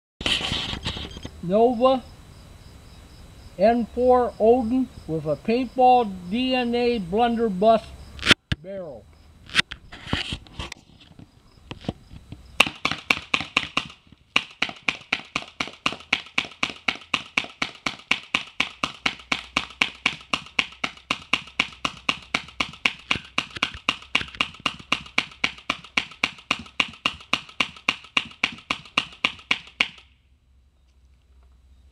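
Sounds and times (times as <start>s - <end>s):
paintball marker shots: 12.6s - 30.2s.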